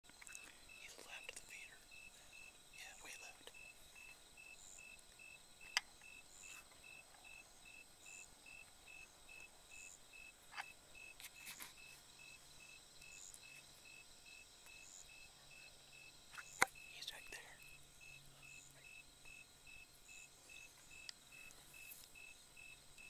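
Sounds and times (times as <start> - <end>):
faint insect chirping: 0.0 - 23.0.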